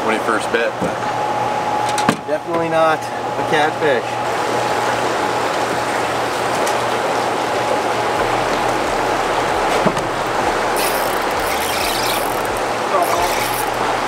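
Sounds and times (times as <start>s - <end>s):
faint steady hum: 0.0s - 14.0s
water pouring over a dam: 6.2s - 14.0s.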